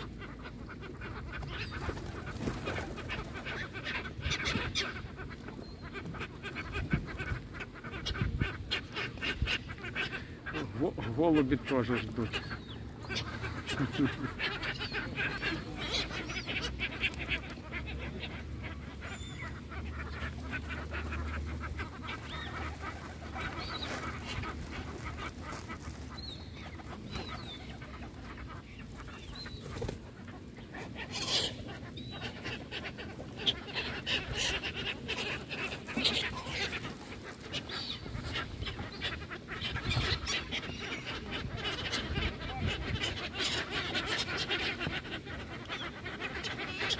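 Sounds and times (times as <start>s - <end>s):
gulls and ducks calling: 0.0s - 46.9s
wings flapping: 1.3s - 4.6s, 20.0s - 30.3s.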